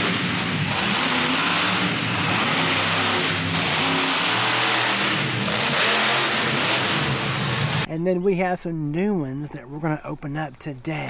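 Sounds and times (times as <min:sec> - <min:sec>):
monster truck engines revving: 0:00.0 - 0:07.9.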